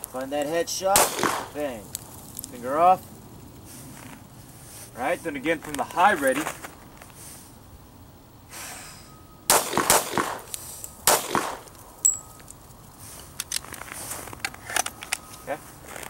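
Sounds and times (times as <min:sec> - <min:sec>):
handgun shots: 0:01.0 - 0:01.6, 0:09.5 - 0:10.5, 0:11.1 - 0:11.7.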